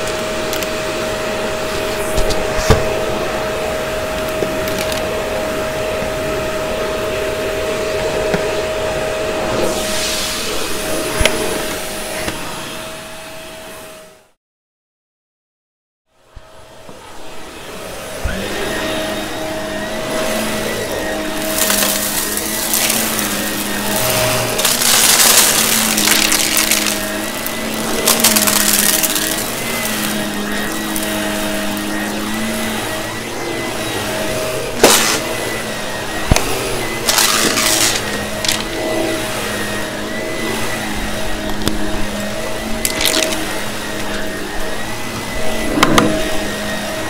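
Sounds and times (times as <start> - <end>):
vacuum cleaner motor hum: 0.0 - 14.2, 16.2 - 47.0
debris crackling through vacuum: 21.4 - 31.0.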